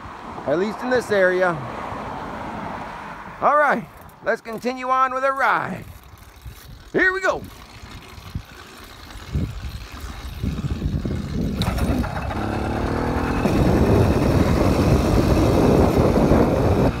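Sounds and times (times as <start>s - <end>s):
motorbike engine pulling away: 7.5s - 17.0s
wind rushing on microphone: 9.2s - 17.0s.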